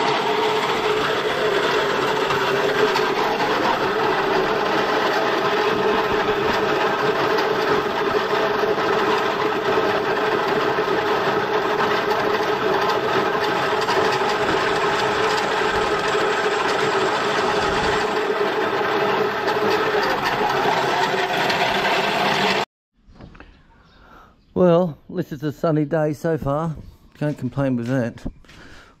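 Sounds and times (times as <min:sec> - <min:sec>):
grinding mill motor running: 0:00.0 - 0:22.7.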